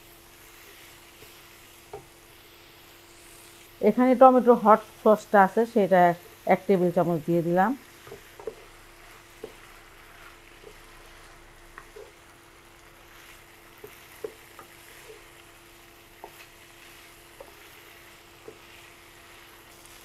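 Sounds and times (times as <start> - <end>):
faint sizzle: 0.0 - 20.0
spatula tapping and scraping pan: 1.2 - 2.2, 8.0 - 10.9, 11.7 - 12.2, 13.1 - 15.4, 16.0 - 20.0.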